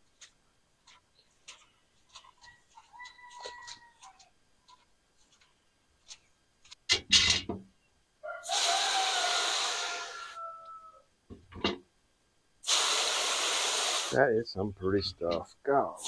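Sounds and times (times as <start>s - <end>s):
hose spraying water: 8.4s - 10.4s, 12.6s - 14.2s.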